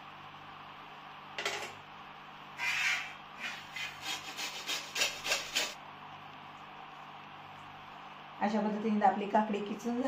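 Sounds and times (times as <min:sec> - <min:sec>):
cucumber rasping on grater: 0:02.6 - 0:05.8.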